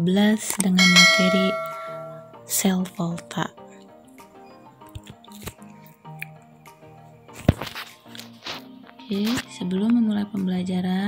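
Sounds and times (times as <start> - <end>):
quiet instrumental music: 0.8 - 2.3, 6.4 - 11.0.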